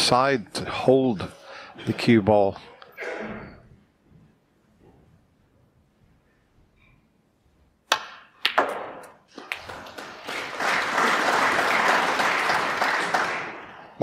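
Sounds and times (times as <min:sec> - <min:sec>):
audience applauding: 0:09.3 - 0:14.0.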